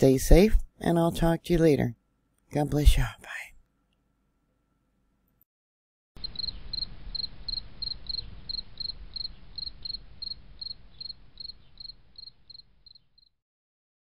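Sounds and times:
low background hiss: 0:06.2 - 0:13.0
cricket chirping: 0:06.2 - 0:13.4.

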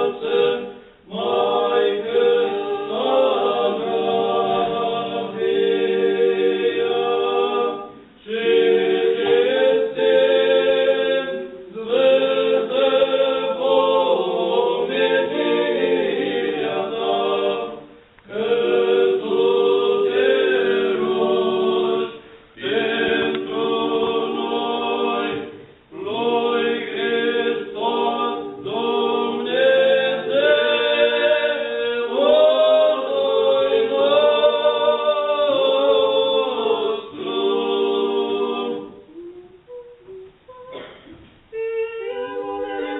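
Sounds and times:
choir chanting unaccompanied: 0:00.0 - 0:42.9.

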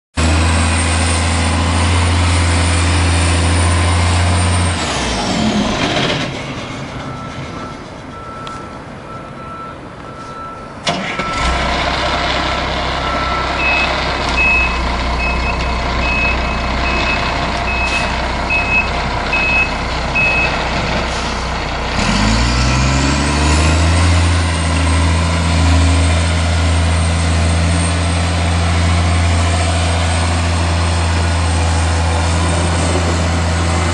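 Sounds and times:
diesel truck engine revving: 0:00.2 - 0:09.7, 0:10.7 - 0:33.9
backup alarm beeping: 0:13.1 - 0:20.6.

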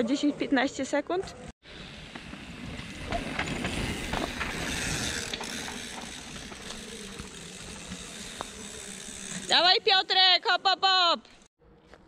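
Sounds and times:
tyres rolling on dirt: 0:01.7 - 0:10.5
bicycle freehubs ticking: 0:04.6 - 0:10.2.

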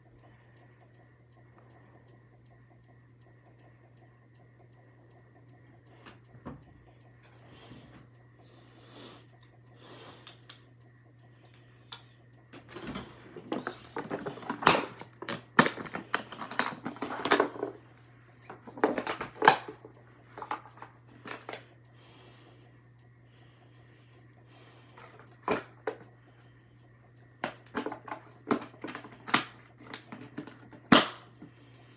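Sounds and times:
plastic makeup compacts clattering: 0:13.5 - 0:17.8, 0:18.5 - 0:19.8, 0:27.4 - 0:31.0.

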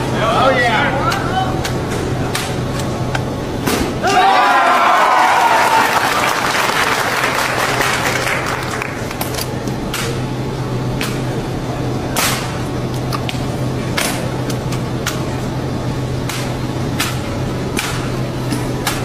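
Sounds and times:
steady low hum: 0:00.0 - 0:19.0
crowd cheering and applause: 0:04.0 - 0:09.2.

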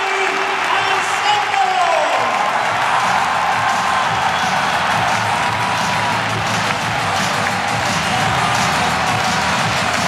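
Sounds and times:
stadium crowd cheering: 0:00.0 - 0:10.0
music over public address: 0:02.6 - 0:10.0.

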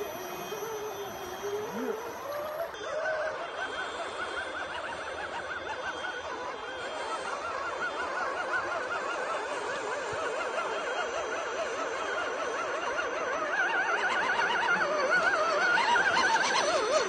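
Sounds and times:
electric motor whine: 0:00.0 - 0:02.8.

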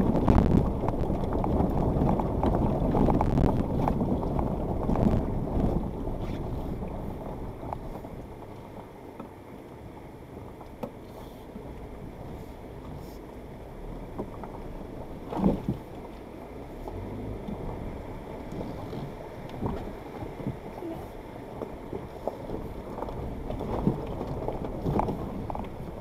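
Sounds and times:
knocks and thumps over stones: 0:00.0 - 0:05.9, 0:21.6 - 0:26.0
engine and tyres rumbling: 0:00.0 - 0:26.0.

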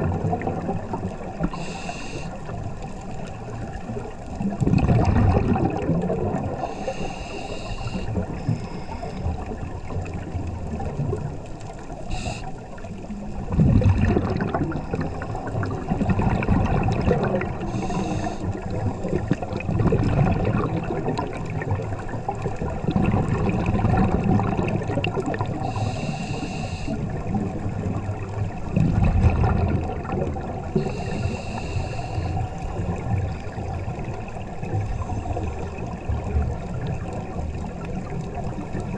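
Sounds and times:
gurgling exhaled bubbles: 0:00.0 - 0:38.9
regulator hissing: 0:12.1 - 0:12.5, 0:17.7 - 0:18.4.

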